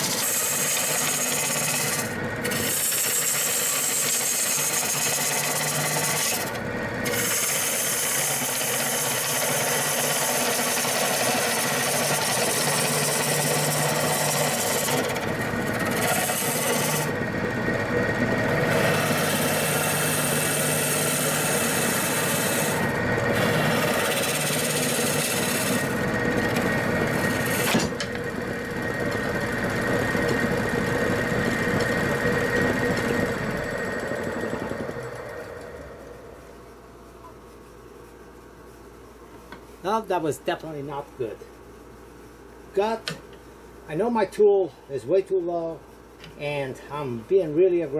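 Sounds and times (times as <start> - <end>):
lathe tool scraping wood: 0.0 - 36.0.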